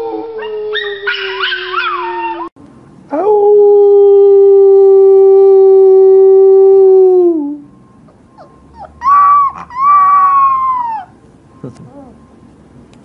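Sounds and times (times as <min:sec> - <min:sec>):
dog howling: 0:00.0 - 0:02.6, 0:08.4 - 0:11.2
puppy howling: 0:00.0 - 0:02.6, 0:08.1 - 0:11.2.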